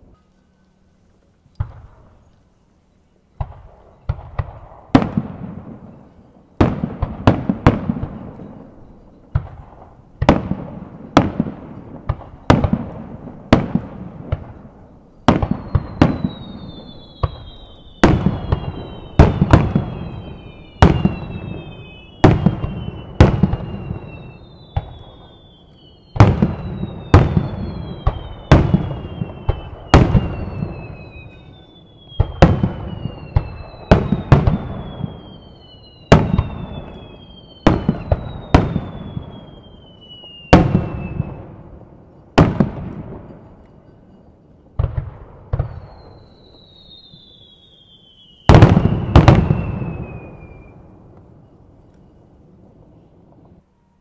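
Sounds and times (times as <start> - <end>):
firework shells booming: 3.4 - 25.4, 36.1 - 39.6, 48.4 - 50.7
high falling whistles: 15.3 - 42.3, 45.6 - 54.0.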